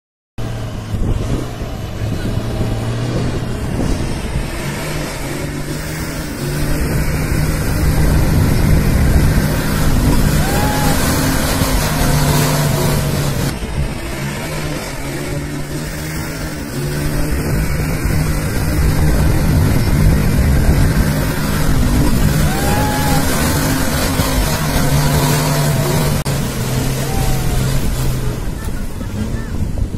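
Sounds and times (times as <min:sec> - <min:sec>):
diesel truck engine labouring: 0:00.4 - 0:29.9
water and sand churning: 0:00.4 - 0:29.9.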